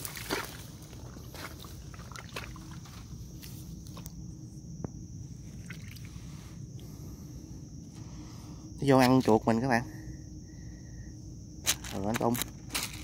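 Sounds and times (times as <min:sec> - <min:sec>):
steady high hiss: 0:03.0 - 0:13.0.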